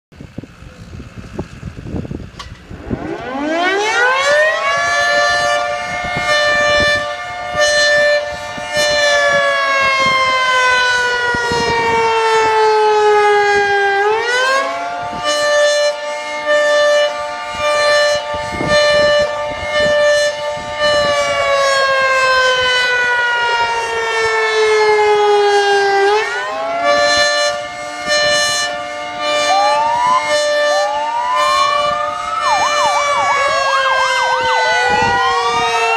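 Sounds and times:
warning siren winding: 2.3 - 16.0, 24.2 - 35.9
vehicle siren sweeping upward: 2.7 - 35.9.

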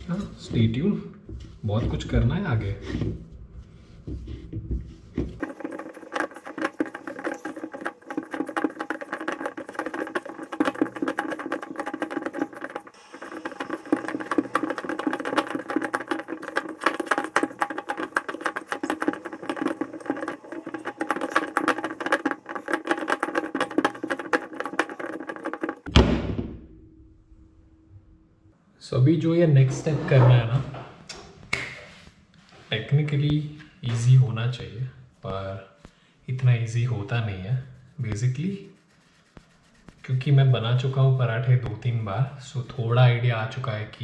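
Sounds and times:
dough squishing in metal bowl: 4.2 - 25.9, 38.0 - 42.6.

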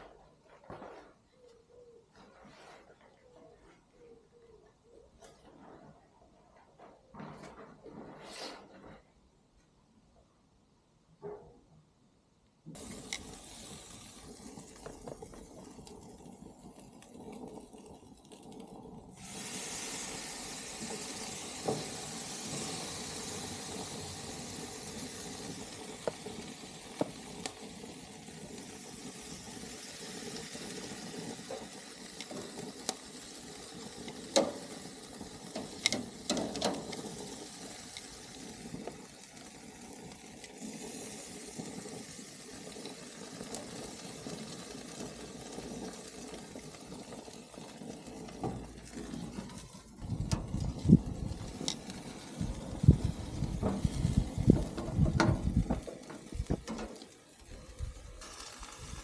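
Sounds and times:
chicken sizzling on grill: 12.7 - 59.0
metal tongs clicking on grate: 35.5 - 37.0.

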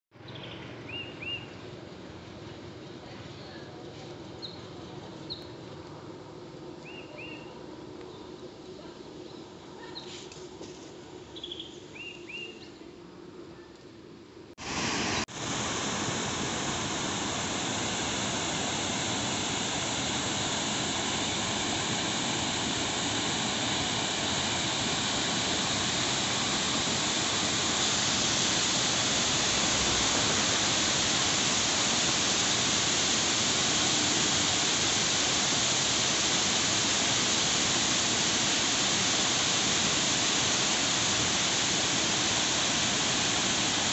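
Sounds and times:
bird chirps: 11.4 - 12.9
water rushing over weir: 14.6 - 43.9.

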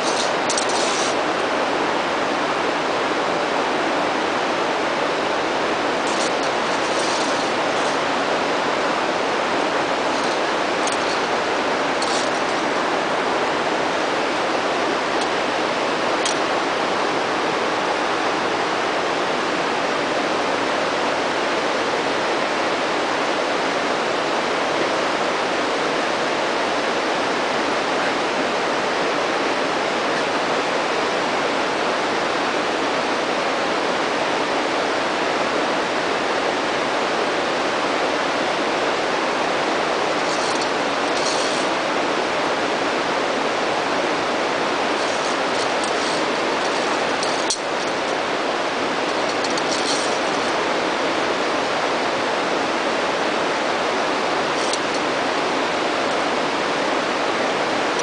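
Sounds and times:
steady rushing noise: 0.0 - 26.3, 36.5 - 58.0.

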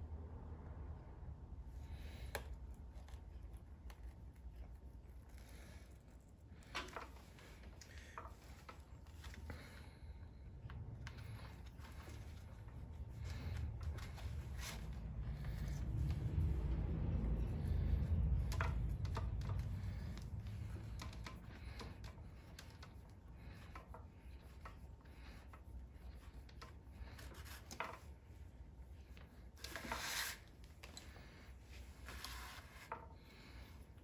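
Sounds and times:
low rumble: 9.8 - 21.6.

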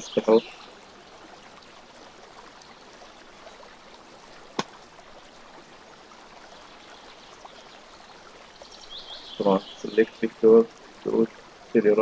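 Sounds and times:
background hiss: 2.8 - 12.0.

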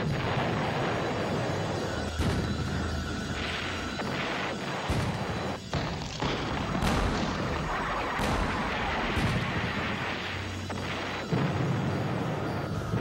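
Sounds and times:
continuous heavy battle din: 0.0 - 13.0
explosions: 0.0 - 13.0
tank gunfire blasts: 2.2 - 12.4.

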